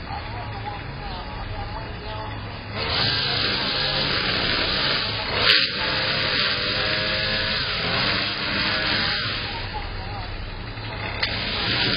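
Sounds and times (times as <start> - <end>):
garden tool motor whirring: 2.8 - 9.7, 11.2 - 11.9.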